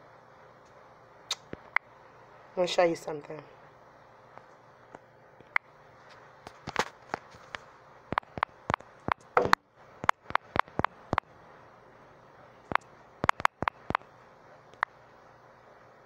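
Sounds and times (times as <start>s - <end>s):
touchscreen typing taps: 12.7s - 14.0s.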